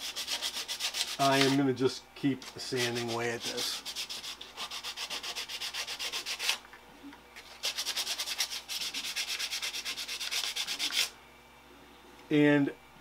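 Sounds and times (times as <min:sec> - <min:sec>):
sandpaper rubbing on plastic: 0:00.0 - 0:01.6, 0:02.6 - 0:06.6, 0:07.4 - 0:11.1.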